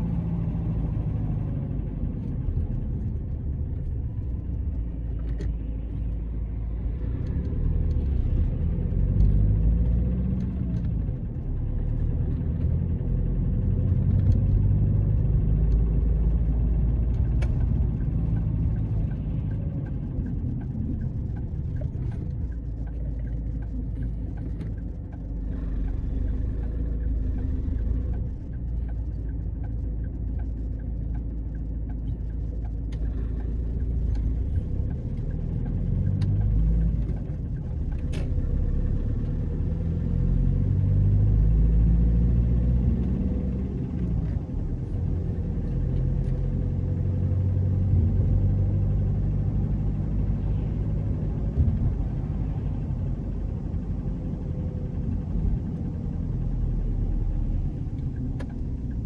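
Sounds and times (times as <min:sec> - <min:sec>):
car engine rumble: 0:00.0 - 0:59.0
road noise: 0:00.0 - 0:59.0
faint regular ticking: 0:17.1 - 0:38.1.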